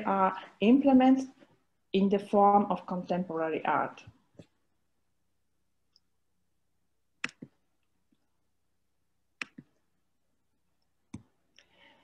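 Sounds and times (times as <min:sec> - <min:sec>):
computer mouse clicks: 0:07.2 - 0:07.6, 0:09.4 - 0:09.8.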